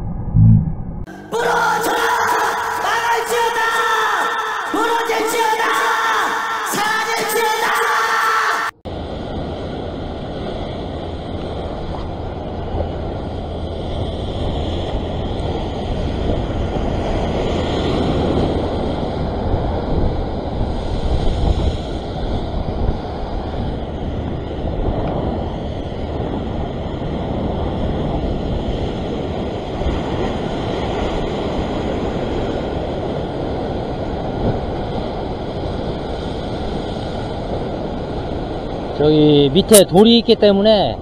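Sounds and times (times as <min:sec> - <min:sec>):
ocean surf breaking on rocks: 0:08.9 - 0:40.0
wind buffeting microphone: 0:08.9 - 0:40.0.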